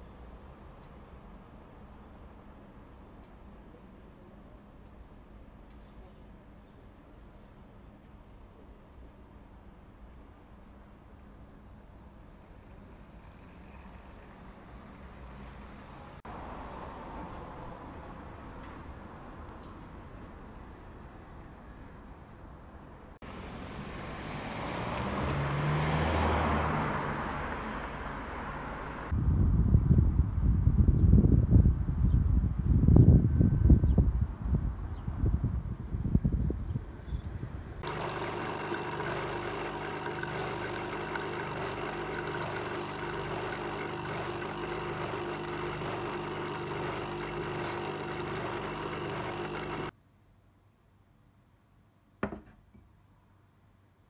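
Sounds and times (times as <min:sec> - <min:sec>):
car driving past: 0:23.4 - 0:29.1
coffee machine humming: 0:37.8 - 0:49.9
coffee pouring into a mug: 0:37.9 - 0:49.9.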